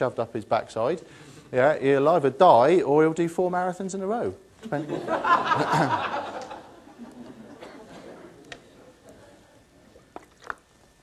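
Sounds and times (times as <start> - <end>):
audience laughing: 4.7 - 9.5.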